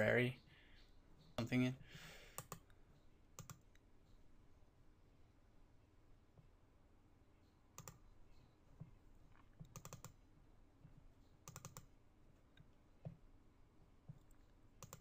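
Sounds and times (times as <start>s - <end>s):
computer mouse clicking: 2.4s - 2.8s, 3.4s - 3.9s, 7.8s - 8.1s, 9.4s - 10.2s, 11.4s - 11.9s, 14.1s - 15.0s.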